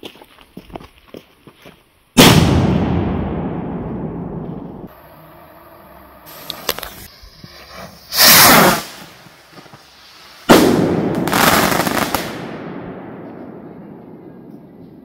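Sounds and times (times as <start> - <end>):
firecracker bangs: 2.2 - 4.9, 8.1 - 9.2, 10.5 - 13.8
faint high hiss: 4.8 - 12.4.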